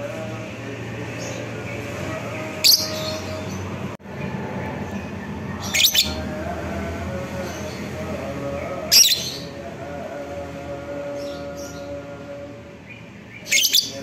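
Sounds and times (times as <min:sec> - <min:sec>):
lovebird shrill calls: 0:05.7 - 0:06.2.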